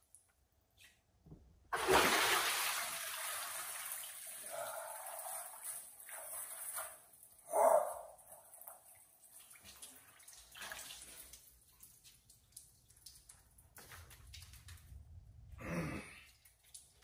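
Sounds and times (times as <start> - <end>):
water splashing: 1.7 - 7.2
water streaming and dripping: 3.1 - 17.0.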